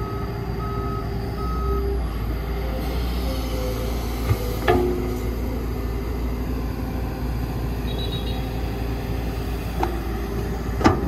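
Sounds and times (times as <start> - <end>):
diesel engine running: 0.0 - 11.0
metallic clank: 4.3 - 5.3.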